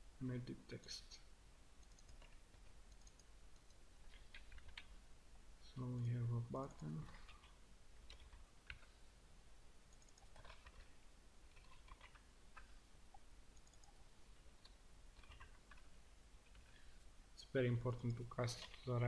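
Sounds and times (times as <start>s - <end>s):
low steady hum: 0.0s - 19.0s
keyboard typing: 1.8s - 5.0s, 6.6s - 8.9s, 9.9s - 14.0s, 14.6s - 16.8s.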